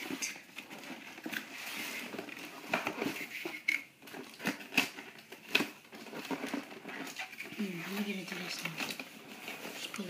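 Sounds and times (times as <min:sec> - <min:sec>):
cardboard box rustling: 0:00.0 - 0:10.0.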